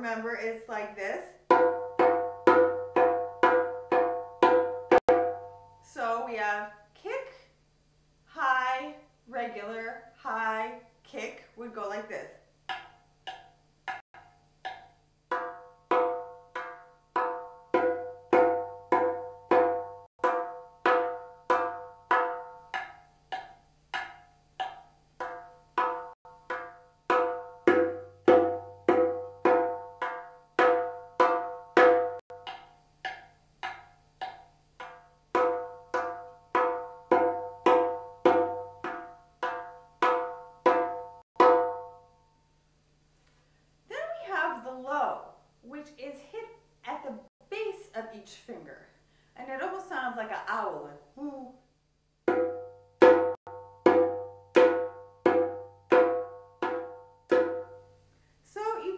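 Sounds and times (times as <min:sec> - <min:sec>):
goblet drum played with fingertips: 0:01.4 - 0:05.8, 0:12.7 - 0:42.2, 0:52.2 - 0:58.0.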